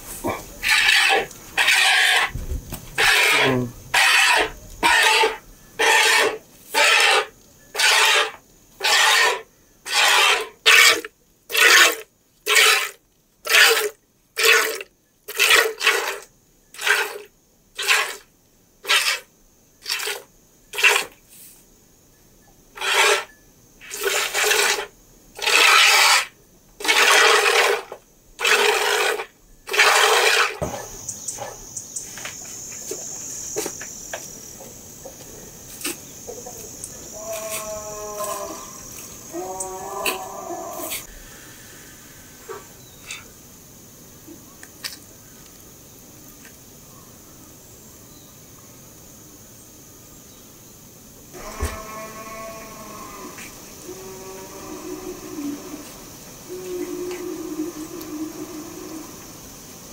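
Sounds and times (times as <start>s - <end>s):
milk squirting into bucket: 11.0s - 17.2s, 19.9s - 20.2s, 25.4s - 30.6s.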